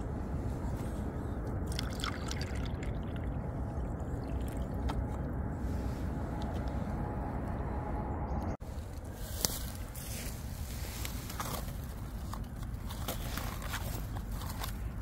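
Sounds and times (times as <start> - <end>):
low rumble: 0.0 - 9.1
water trickling into plastic bowl: 1.7 - 3.4.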